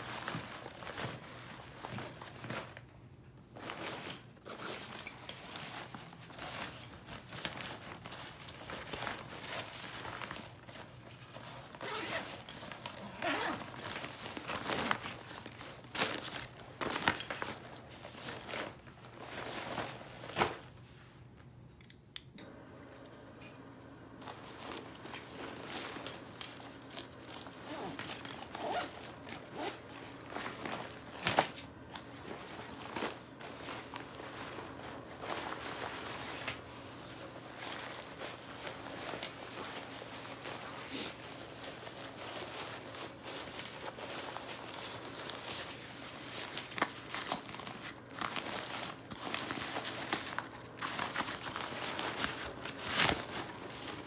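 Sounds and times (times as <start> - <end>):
nylon fabric rustling: 0.0 - 20.9, 24.1 - 54.0
zipper: 10.4 - 17.2, 25.0 - 31.4.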